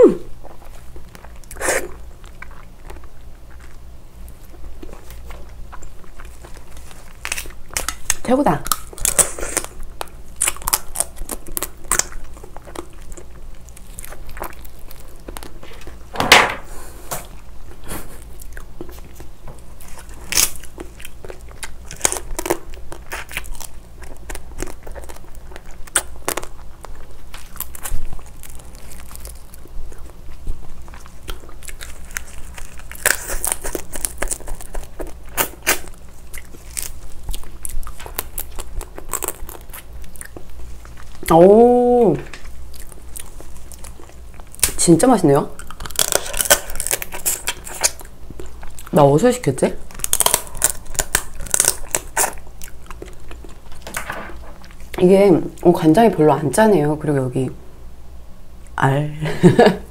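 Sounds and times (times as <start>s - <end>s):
chewing: 0.4s - 16.1s, 17.2s - 41.5s, 42.3s - 44.8s, 45.5s - 49.0s, 49.8s - 55.0s
crab shell cracking: 7.1s - 15.9s, 20.1s - 26.6s, 45.6s - 48.1s, 49.9s - 54.1s.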